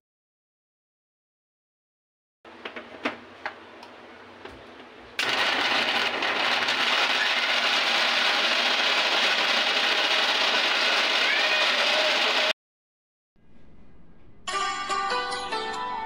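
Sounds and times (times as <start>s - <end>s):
mixer grinder motor grinding: 5.2s - 12.5s.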